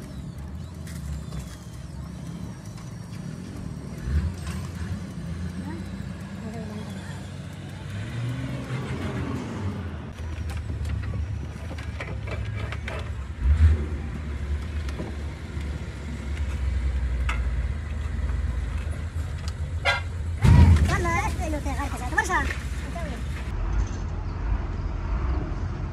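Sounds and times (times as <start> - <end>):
engine idling: 0.0 - 23.5.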